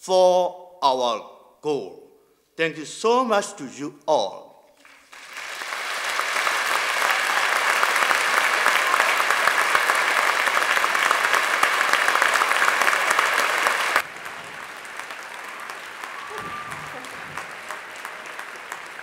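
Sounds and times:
audience applauding: 0:04.8 - 0:19.0.

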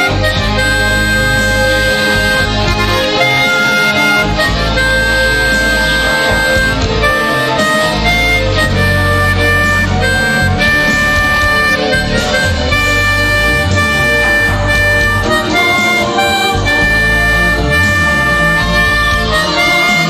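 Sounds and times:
accompaniment with moving bass line: 0:00.0 - 0:20.0
harmonica long held notes: 0:00.0 - 0:20.0.

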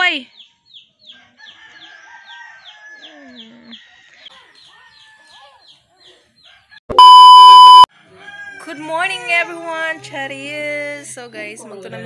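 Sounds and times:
chicks peeping: 0:00.3 - 0:06.7.

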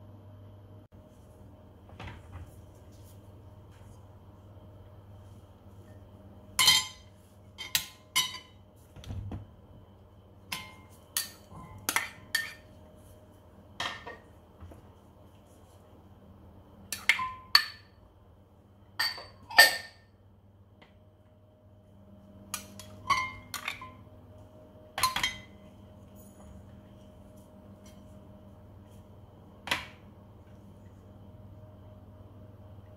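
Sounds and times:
spoon clinking on ceramic bowls: 0:06.6 - 0:08.6, 0:10.5 - 0:12.7, 0:19.0 - 0:20.1, 0:22.6 - 0:24.0, 0:25.0 - 0:26.6.

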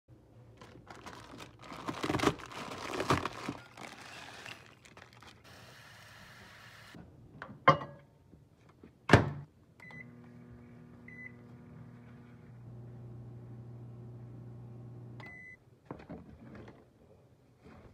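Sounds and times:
plastic packet crinkling: 0:00.5 - 0:05.5
microwave oven humming: 0:09.8 - 0:15.4.

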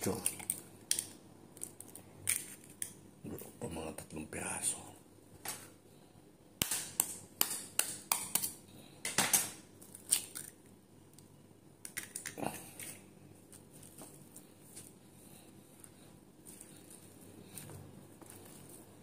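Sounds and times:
eggshell cracking: 0:09.8 - 0:13.7.

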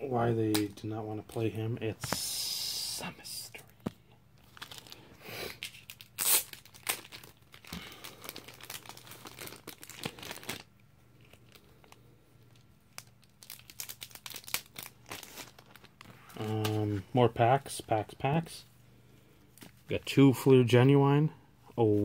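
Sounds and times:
packaging crinkling and tearing: 0:04.4 - 0:17.0.

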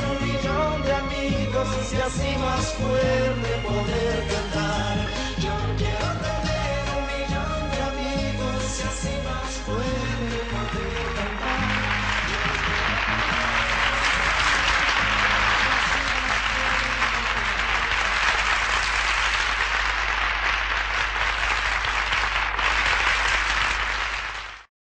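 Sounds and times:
instrumental music: 0:00.0 - 0:18.4
audience applauding: 0:10.3 - 0:24.7.

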